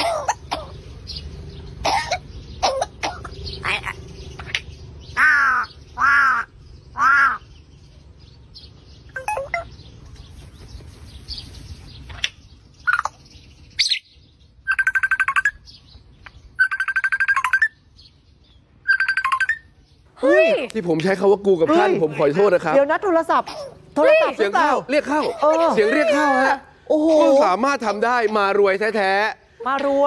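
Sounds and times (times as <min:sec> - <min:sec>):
parrot calls and chirps: 0:00.0 - 0:20.7
parrot mimicking phone ringtone: 0:09.2 - 0:09.7
parrot whistling: 0:18.9 - 0:19.6.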